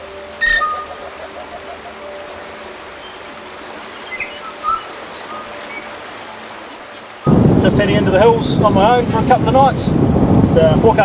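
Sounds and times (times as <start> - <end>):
stream water running: 0.0 - 11.0
bird chirps: 0.3 - 2.2, 2.9 - 6.0.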